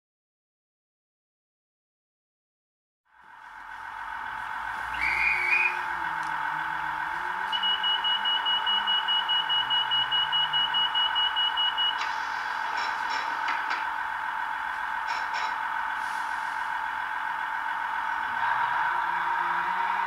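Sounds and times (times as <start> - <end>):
model train engine hum: 3.1 - 20.0
rapid beeping: 4.2 - 15.9
hiss: 16.0 - 16.7.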